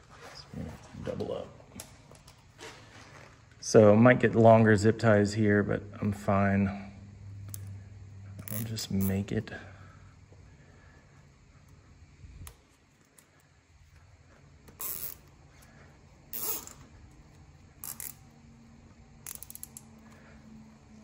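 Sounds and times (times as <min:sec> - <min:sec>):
zip tie ratcheting: 0:08.4 - 0:09.2, 0:14.7 - 0:15.4, 0:16.3 - 0:18.3, 0:19.2 - 0:19.9.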